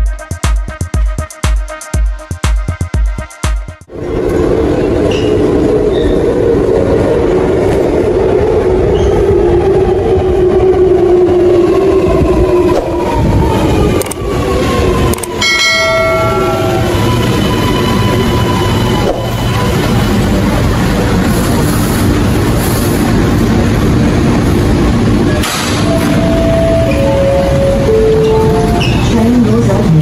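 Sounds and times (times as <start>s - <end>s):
train wheels rumbling on rail: 3.9s - 30.0s
short pitched tone: 15.5s - 18.0s.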